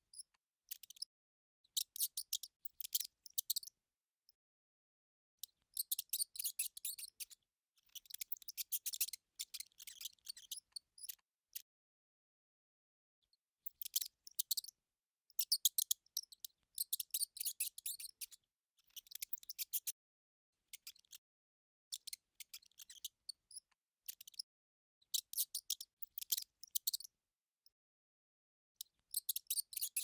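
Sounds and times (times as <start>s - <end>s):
mouse squeaking: 0.1s - 1.1s, 1.7s - 3.8s, 5.4s - 11.7s, 13.6s - 20.0s, 20.7s - 21.2s, 21.9s - 27.1s, 28.8s - 30.0s.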